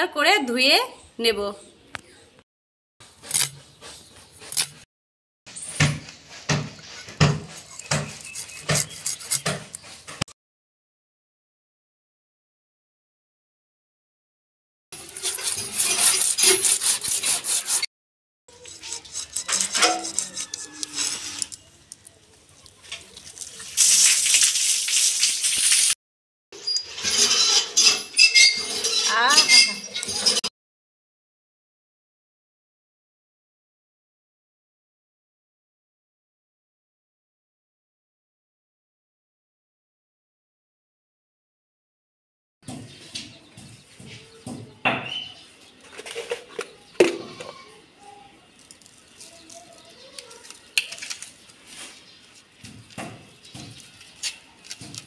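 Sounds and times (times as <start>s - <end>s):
knife blade scraping fish: 7.6s - 10.2s, 15.0s - 17.9s, 18.5s - 21.6s.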